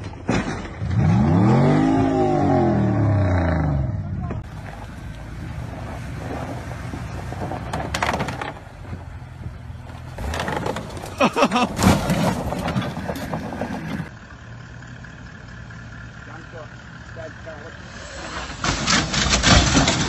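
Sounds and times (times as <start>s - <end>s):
car engine revving: 0.8s - 9.5s.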